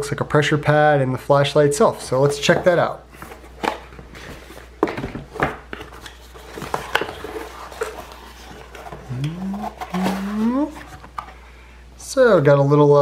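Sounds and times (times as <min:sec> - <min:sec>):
cardboard scraping and rustling: 0:02.4 - 0:11.4.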